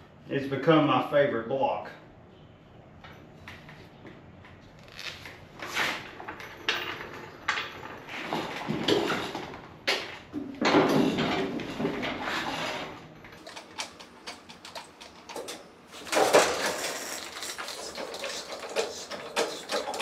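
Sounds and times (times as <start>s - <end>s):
objects scraping and clattering: 4.7s - 20.0s.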